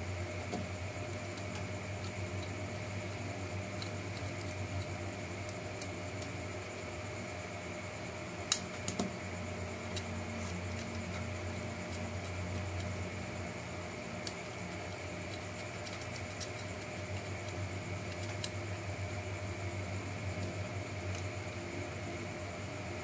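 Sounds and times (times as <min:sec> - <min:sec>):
steady background hum: 0:00.0 - 0:23.0.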